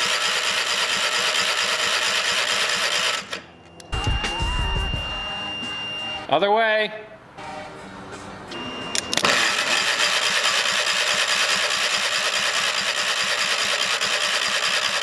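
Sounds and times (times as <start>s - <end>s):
electric starter cranking engine: 0.0s - 3.5s, 8.9s - 15.0s.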